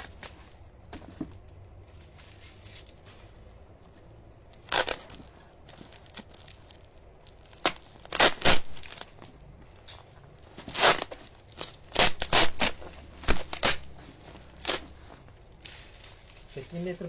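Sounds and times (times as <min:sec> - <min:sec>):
packing tape ripping: 0:04.6 - 0:09.2, 0:10.6 - 0:15.0
bubble wrap crinkling: 0:04.6 - 0:17.0.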